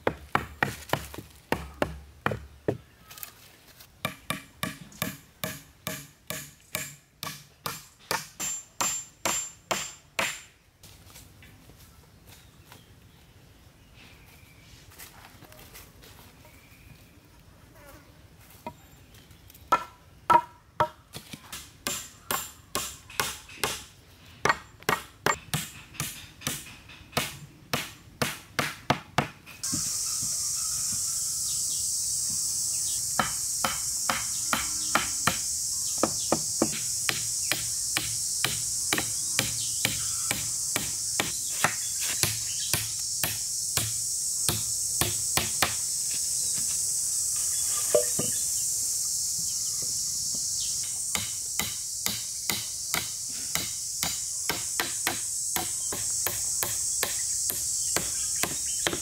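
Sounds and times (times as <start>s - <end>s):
tool striking wood: 0.0s - 2.8s, 4.0s - 10.5s, 19.7s - 29.9s, 33.2s - 45.8s, 47.9s - 48.4s, 51.1s - 59.0s
high-pitched insect drone: 29.6s - 58.8s.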